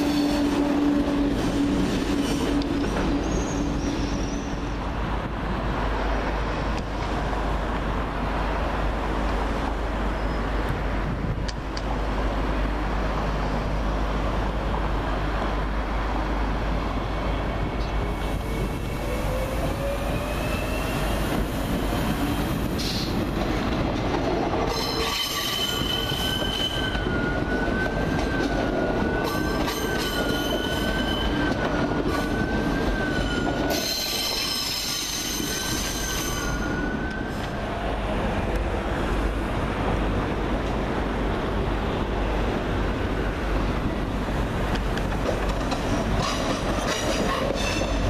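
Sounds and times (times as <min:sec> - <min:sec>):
train wheels squealing: 0:00.0 - 0:04.8, 0:10.1 - 0:10.6, 0:17.1 - 0:23.1, 0:24.7 - 0:37.6, 0:46.2 - 0:48.0.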